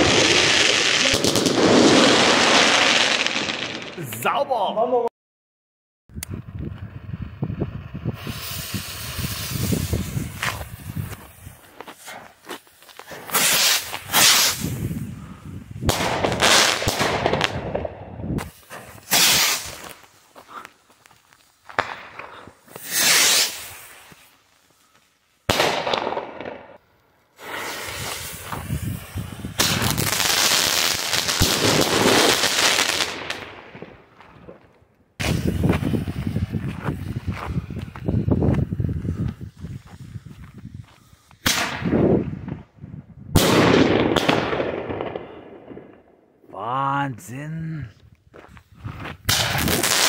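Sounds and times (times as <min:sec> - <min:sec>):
firework bangs: 0:00.0 - 0:04.0, 0:07.7 - 0:11.7, 0:13.0 - 0:15.1, 0:15.8 - 0:20.1, 0:21.7 - 0:24.3, 0:25.5 - 0:26.8, 0:27.4 - 0:38.0, 0:41.4 - 0:42.7, 0:43.3 - 0:46.1, 0:49.2 - 0:50.0
fireworks hissing and crackling: 0:00.0 - 0:04.2, 0:06.7 - 0:42.6, 0:48.4 - 0:50.0
firework whistle: 0:13.3 - 0:14.9, 0:19.0 - 0:19.8, 0:22.7 - 0:24.2.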